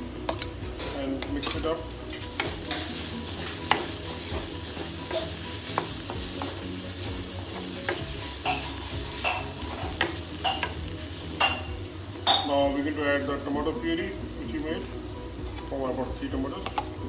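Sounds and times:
ladle scraping a wok: 0.0s - 12.3s
onions sizzling in oil: 0.0s - 17.0s.

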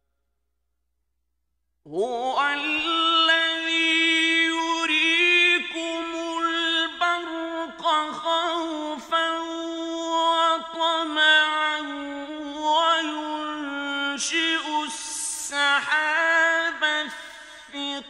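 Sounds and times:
man chanting melodically: 1.9s - 18.0s
breaths: 17.1s - 17.8s.

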